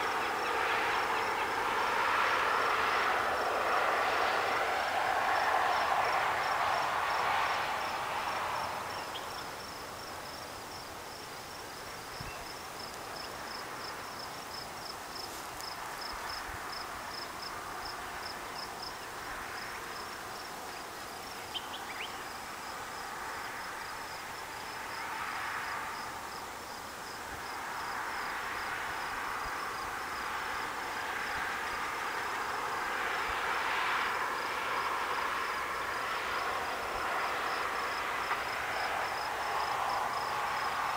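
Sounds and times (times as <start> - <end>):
insect chirping: 0.0 - 3.9, 5.0 - 32.6, 34.3 - 40.9.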